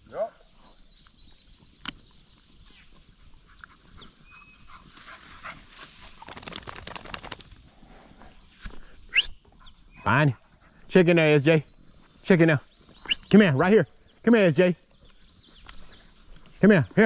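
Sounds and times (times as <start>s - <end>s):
rustling through tall grass: 2.8s - 7.5s.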